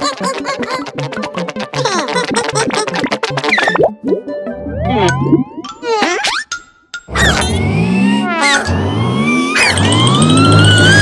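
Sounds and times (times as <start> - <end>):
background music: 0.0 - 6.8.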